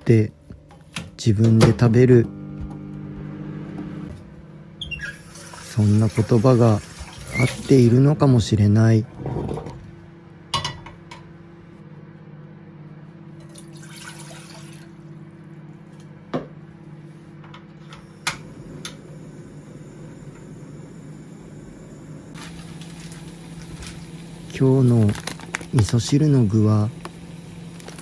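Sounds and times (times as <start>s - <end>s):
water pouring into metal saucepan: 13.5s - 14.9s.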